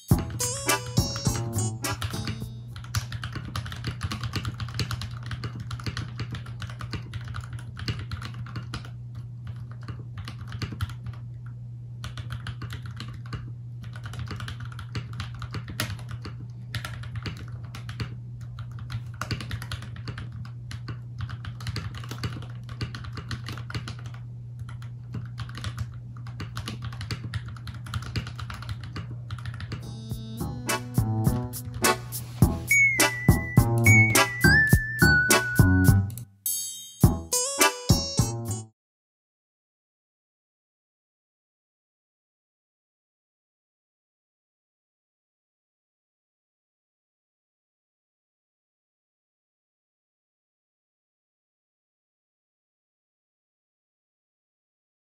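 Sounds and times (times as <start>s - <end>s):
mechanical keyboard typing: 1.0s - 29.9s.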